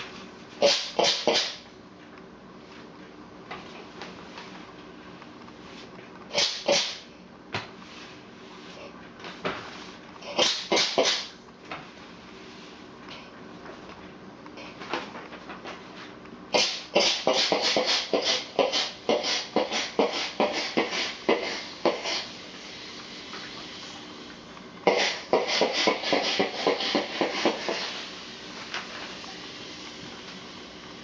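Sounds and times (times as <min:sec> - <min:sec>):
steam iron hissing spurts: 0:16.6 - 0:24.0, 0:24.9 - 0:30.0.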